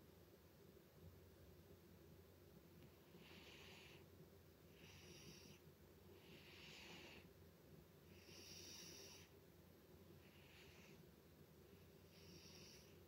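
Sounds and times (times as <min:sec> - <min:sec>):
cat snoring: 0:03.1 - 0:04.0, 0:04.7 - 0:05.6, 0:06.2 - 0:07.3, 0:08.1 - 0:09.3, 0:10.2 - 0:11.0, 0:11.9 - 0:13.0.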